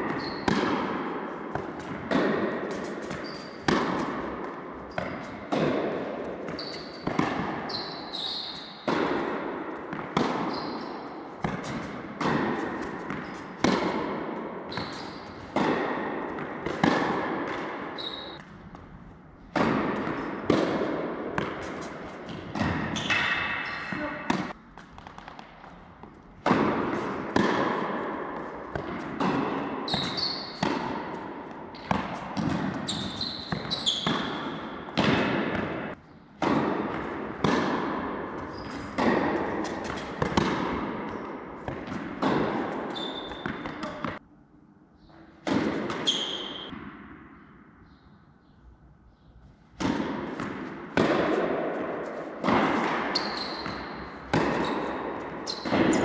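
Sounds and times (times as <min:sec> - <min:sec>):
shoes squeaking on court: 0:00.0 - 0:14.1, 0:14.7 - 0:15.7, 0:16.4 - 0:18.4, 0:21.4 - 0:26.3, 0:26.9 - 0:36.2, 0:38.3 - 0:44.2, 0:45.0 - 0:46.8, 0:50.3 - 0:56.0
rackets hitting tennis ball: 0:00.0 - 0:44.3, 0:45.0 - 0:56.0.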